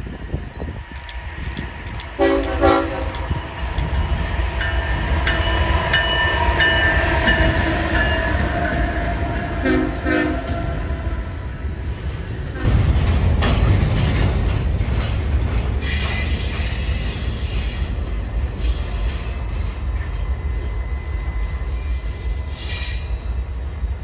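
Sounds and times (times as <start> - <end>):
train air horn blasts: 2.2 - 3.3, 6.4 - 11.8
high ringing tone: 19.3 - 24.0.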